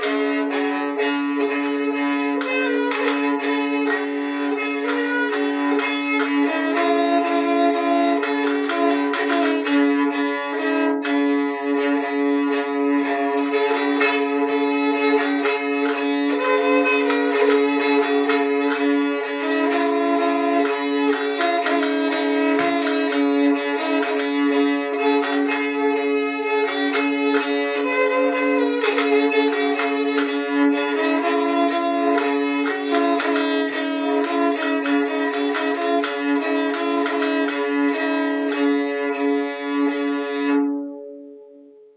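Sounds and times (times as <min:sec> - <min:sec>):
bowed string melody: 0:00.0 - 0:41.9
held drone note: 0:00.0 - 0:41.9.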